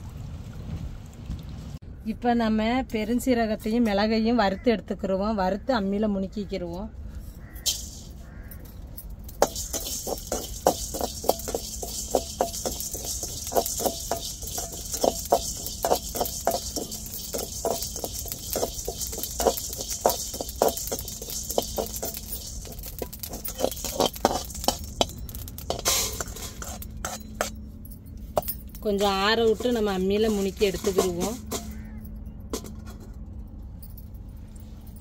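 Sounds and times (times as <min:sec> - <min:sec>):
metal ladle scraping metal pan: 0:09.4 - 0:27.5, 0:28.8 - 0:31.8.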